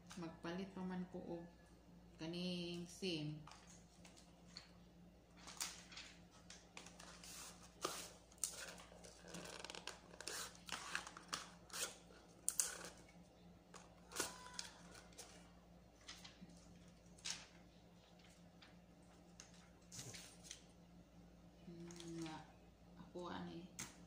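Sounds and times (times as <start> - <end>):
faint steady hum: 0.0 - 24.0
paper and plastic crinkling: 5.3 - 13.0, 13.8 - 20.6.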